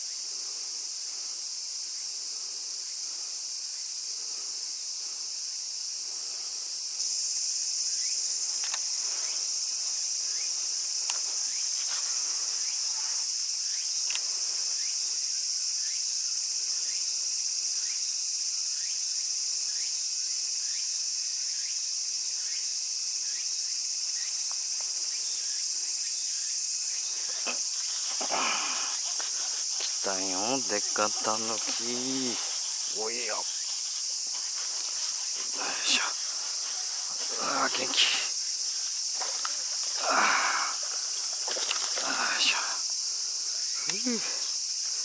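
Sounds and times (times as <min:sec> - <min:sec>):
insects chorus: 0:00.0 - 0:45.0
faint clicks: 0:08.6 - 0:08.9, 0:14.0 - 0:14.3.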